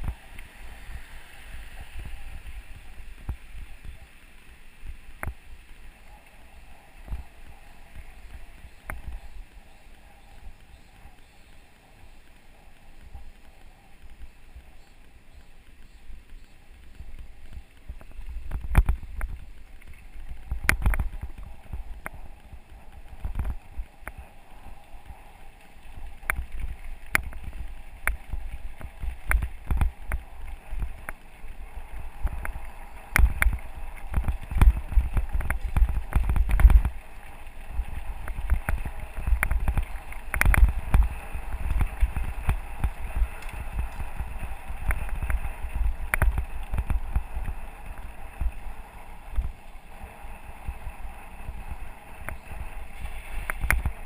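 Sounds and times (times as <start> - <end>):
bike rumbling over gravel road: 0.0 - 54.0
bike rattling and knocking: 14.8 - 49.6.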